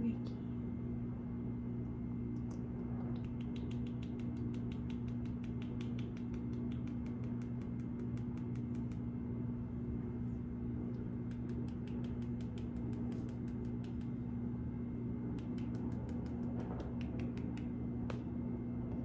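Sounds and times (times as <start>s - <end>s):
steady low hum: 0.0s - 19.0s
clicks of hands moving: 3.2s - 9.0s, 11.3s - 14.1s, 15.4s - 18.2s.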